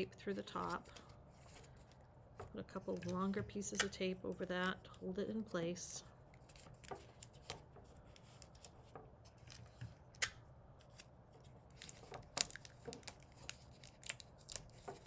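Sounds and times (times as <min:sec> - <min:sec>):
paper and sticky tape crackling: 0:06.3 - 0:15.0.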